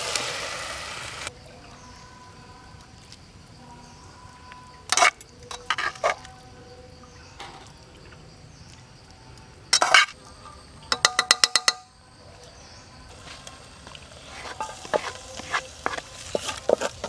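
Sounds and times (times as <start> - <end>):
metal utensils clinking on cookware: 4.9 - 6.2, 9.8 - 10.2, 14.4 - 17.0
spatula tapping inside metal pot: 10.9 - 11.9.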